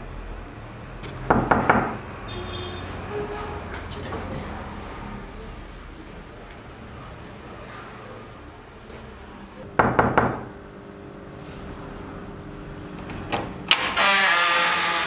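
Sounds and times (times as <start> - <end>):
knocks on a wooden door: 1.3 - 2.0, 9.8 - 10.5.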